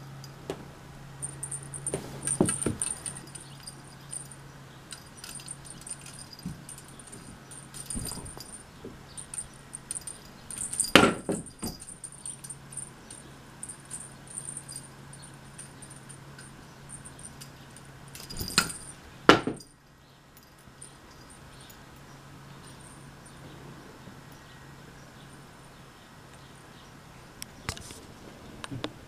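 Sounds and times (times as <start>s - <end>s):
metal spring jingling and clicking: 1.2s - 23.6s.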